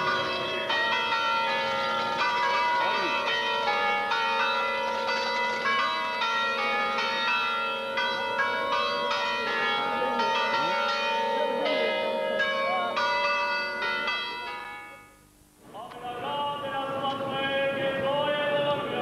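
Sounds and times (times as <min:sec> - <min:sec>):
church bells pealing: 0:00.0 - 0:15.2.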